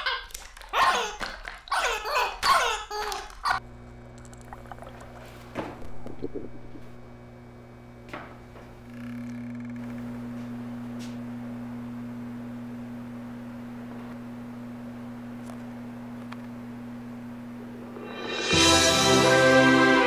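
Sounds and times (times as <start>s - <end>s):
low hum of two pure tones: 3.6s - 18.5s
music: 18.0s - 20.0s.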